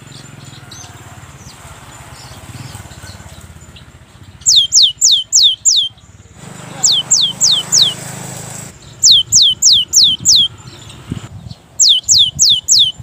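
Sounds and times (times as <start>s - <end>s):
bird whistling song: 4.4s - 6.1s, 6.8s - 8.0s, 8.8s - 13.0s.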